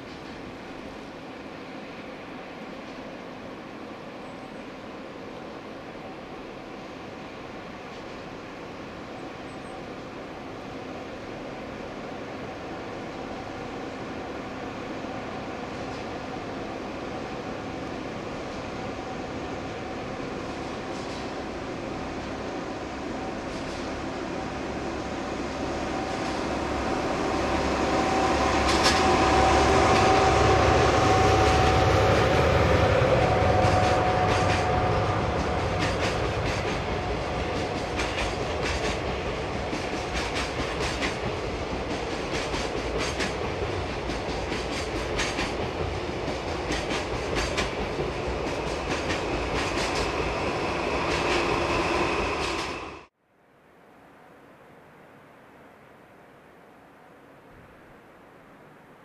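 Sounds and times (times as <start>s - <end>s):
diesel locomotive running: 4.6s - 53.1s
wheels clicking over rail joints: 33.7s - 50.4s.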